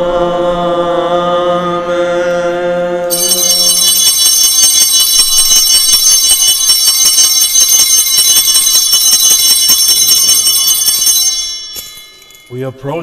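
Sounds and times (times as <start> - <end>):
altar bells jingling rapidly: 3.1 - 13.0.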